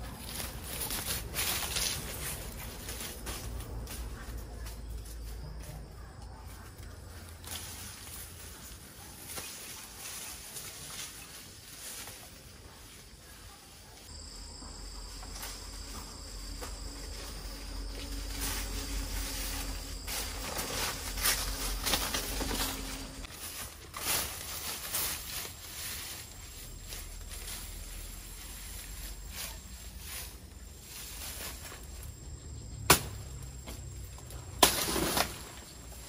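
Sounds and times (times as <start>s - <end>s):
insects trilling: 14.0s - 23.3s, 24.7s - 36.0s.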